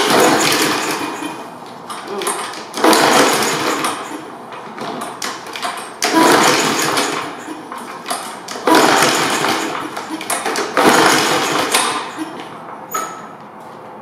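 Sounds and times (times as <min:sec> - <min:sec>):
mower engine pull-start cranking: 0:00.0 - 0:13.2.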